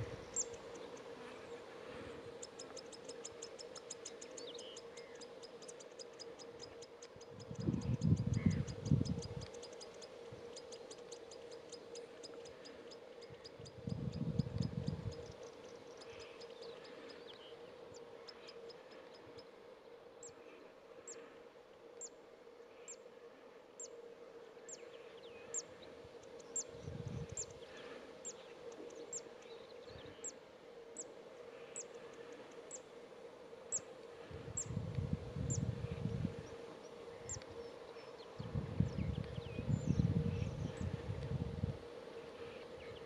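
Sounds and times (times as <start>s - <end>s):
steady low hum: 0.0s - 43.0s
low wind rumbles: 7.3s - 9.4s, 13.7s - 15.3s, 26.7s - 27.4s, 34.2s - 36.6s, 38.4s - 42.0s.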